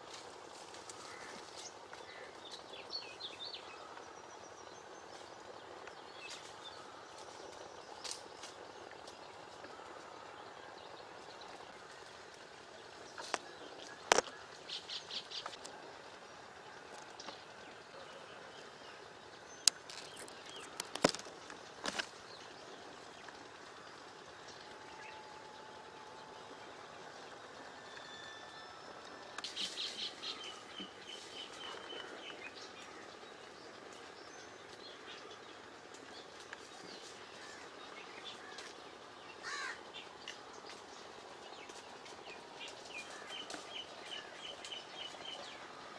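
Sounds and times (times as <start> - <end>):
small birds chirping: 0.0 - 45.9.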